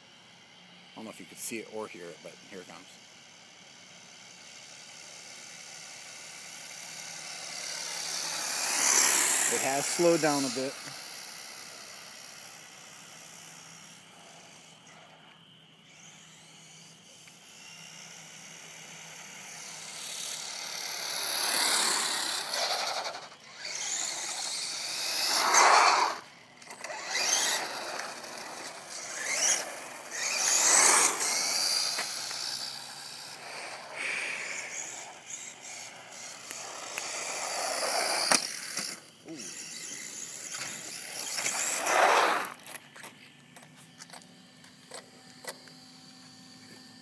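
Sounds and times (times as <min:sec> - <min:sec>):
rc truck motor whining: 0:00.0 - 0:47.0
tyres running on asphalt: 0:05.5 - 0:14.5, 0:18.3 - 0:42.8.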